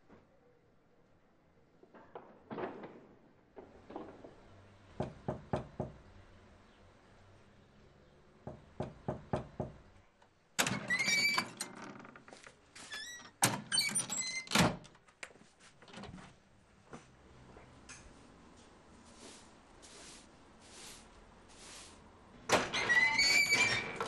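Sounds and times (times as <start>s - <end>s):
door creaking and scraping: 10.6s - 15.0s, 22.4s - 24.0s.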